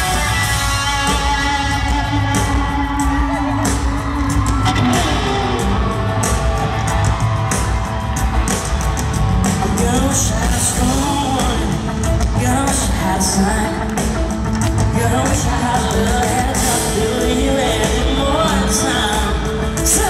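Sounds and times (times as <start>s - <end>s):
electric guitar strumming: 0.0s - 19.8s
drums: 0.0s - 20.0s
pop-rock band playing live: 0.0s - 20.0s
man singing lead vocal: 9.4s - 20.0s.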